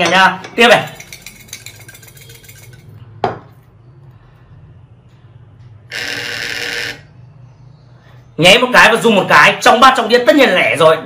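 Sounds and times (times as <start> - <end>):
chips rattling in a bowl: 0.7 - 3.0.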